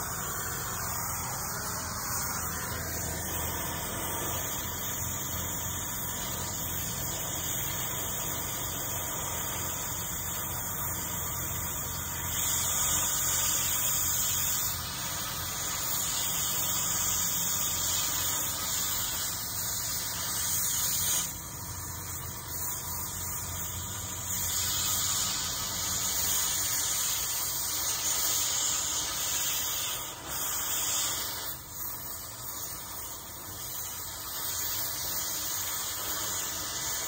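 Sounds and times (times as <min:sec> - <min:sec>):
cutting torch hissing: 0:00.0 - 0:37.0.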